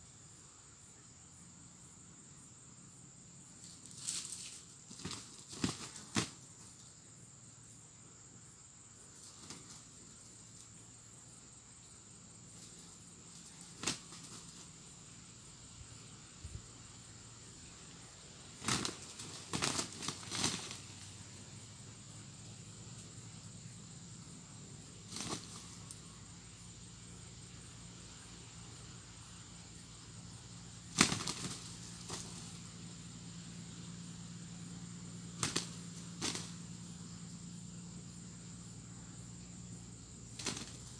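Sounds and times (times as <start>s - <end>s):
roosters flapping and scuffling: 3.6s - 6.9s, 9.1s - 10.8s, 12.5s - 14.8s, 18.6s - 21.5s, 25.0s - 26.1s, 30.9s - 32.8s, 35.4s - 36.8s, 40.3s - 40.9s.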